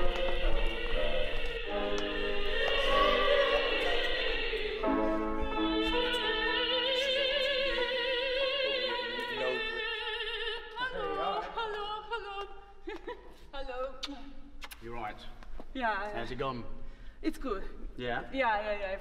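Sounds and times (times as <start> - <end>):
sustained accompanying notes: 0.0 - 10.1.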